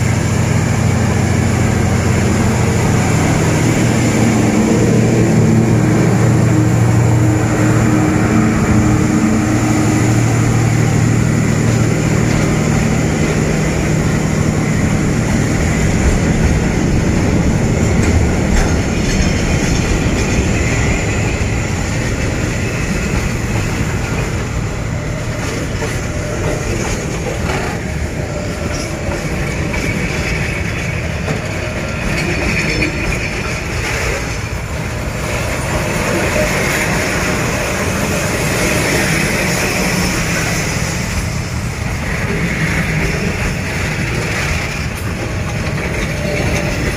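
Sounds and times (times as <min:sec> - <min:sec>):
diesel locomotive engine drone: 0:00.0 - 0:46.9
freight wagons wheels on rails: 0:10.2 - 0:46.9.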